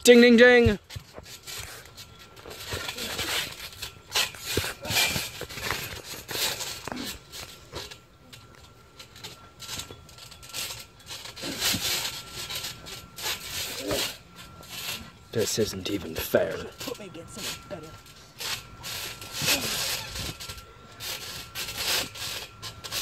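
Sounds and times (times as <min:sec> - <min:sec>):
sharp thumps on trampoline: 0:00.5 - 0:08.0, 0:09.7 - 0:14.2.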